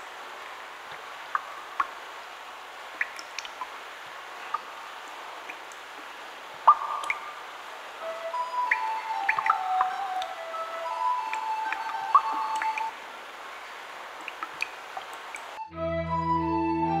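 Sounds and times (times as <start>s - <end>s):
steady hiss: 0.0s - 15.6s
water drops plinking into pool: 3.0s - 3.7s, 6.6s - 7.4s, 8.3s - 12.9s, 14.2s - 15.6s.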